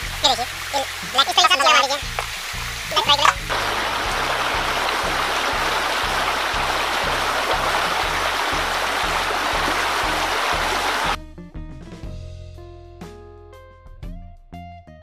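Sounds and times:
water rushing over rocks: 0:00.0 - 0:11.2
brief voice: 0:00.2 - 0:02.1, 0:02.9 - 0:03.4
background music with low beat: 0:02.0 - 0:14.9.

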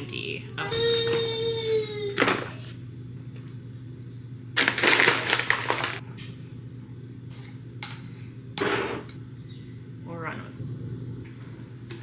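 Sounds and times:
paper bag crinkling: 0:04.6 - 0:06.0.

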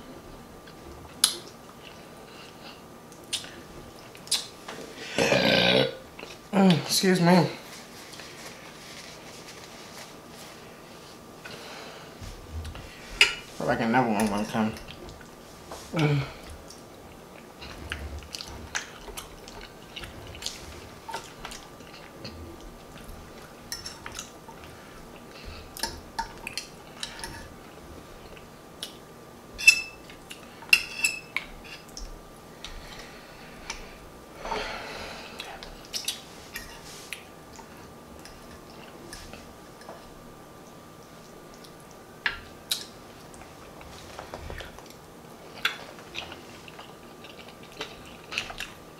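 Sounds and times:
wet chewing and mouth smacking: 0:17.4 - 0:24.7, 0:44.5 - 0:48.8.

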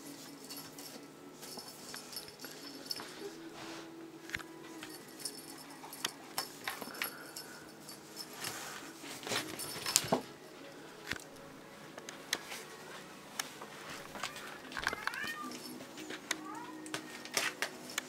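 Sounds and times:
kitten playing with toy: 0:14.1 - 0:15.8.

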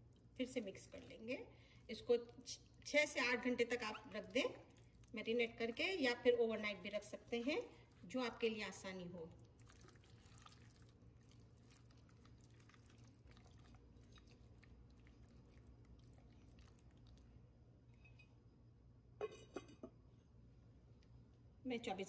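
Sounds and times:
wet squelching of mixing meat: 0:00.0 - 0:17.4.

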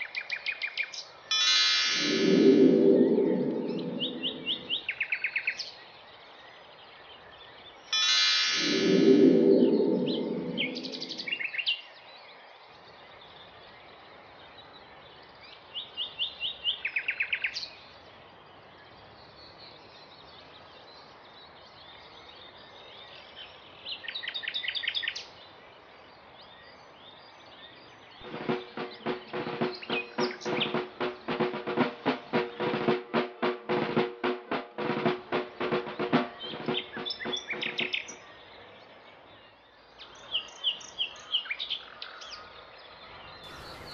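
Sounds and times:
loud pitched sound effect: 0:01.8 - 0:04.8, 0:08.5 - 0:11.4
drum roll: 0:01.9 - 0:04.8, 0:08.5 - 0:11.4, 0:28.2 - 0:38.0, 0:43.5 - 0:43.9
songbird trilling: 0:35.4 - 0:38.2.

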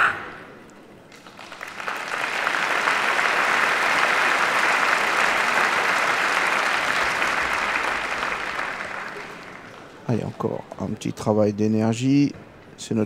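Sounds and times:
audience applauding: 0:01.1 - 0:10.6.

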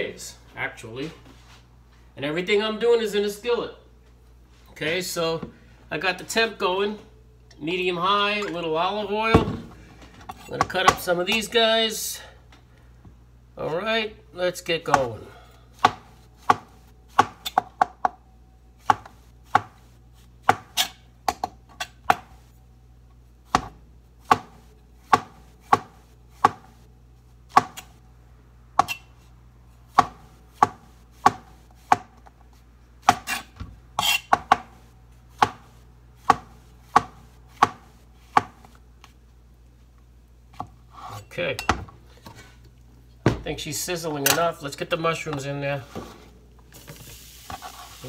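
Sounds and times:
knife chopping on cutting board: 0:15.8 - 0:18.2, 0:18.8 - 0:19.8, 0:20.4 - 0:22.4, 0:23.5 - 0:26.8, 0:27.5 - 0:27.9, 0:29.9 - 0:32.2, 0:33.0 - 0:38.7.

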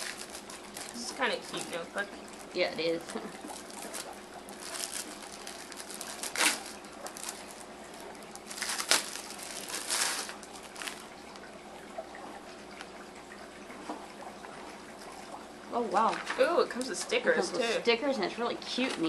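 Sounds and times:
notebook crinkling and rustling: 0:00.0 - 0:11.5.

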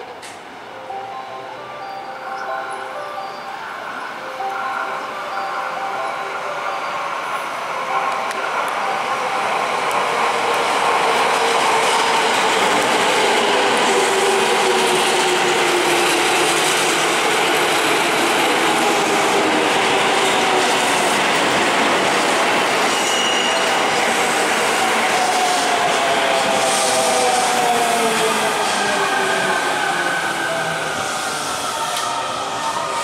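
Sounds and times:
brief high tone: 0:00.8 - 0:10.2
train wheels rumbling on rail: 0:08.1 - 0:33.0.

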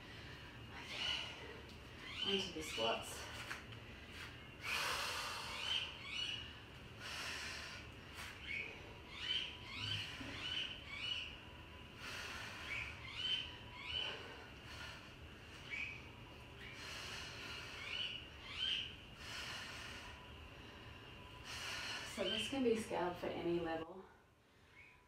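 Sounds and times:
person breathing hard: 0:06.9 - 0:09.1, 0:19.2 - 0:22.2.

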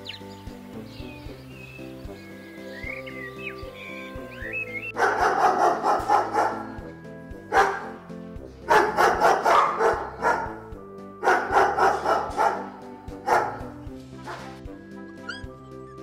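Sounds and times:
background music with held notes: 0:00.0 - 0:16.0
dogs barking excitedly: 0:04.9 - 0:06.9, 0:07.5 - 0:08.0, 0:08.6 - 0:14.6.

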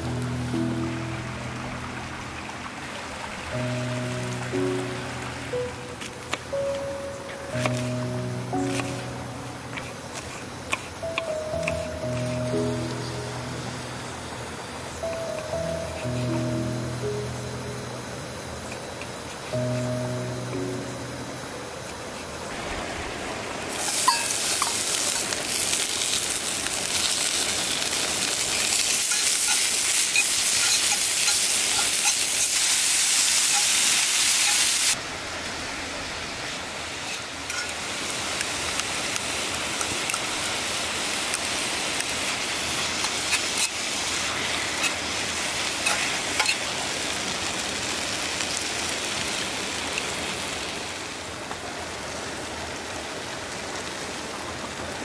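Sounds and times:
onion sizzling in skillet: 0:03.5 - 0:35.0, 0:36.4 - 0:51.6
pork frying: 0:07.4 - 0:19.9, 0:23.7 - 0:35.0, 0:36.4 - 0:51.2
metal tongs clicking in pan: 0:28.8 - 0:32.6, 0:45.8 - 0:46.6.

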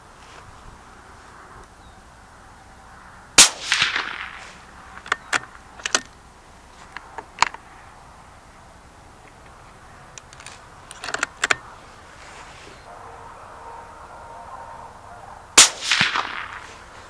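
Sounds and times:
suppressed rifle shot: 0:03.4 - 0:06.0, 0:15.6 - 0:16.9
rifle bolt clicking: 0:10.1 - 0:11.6.

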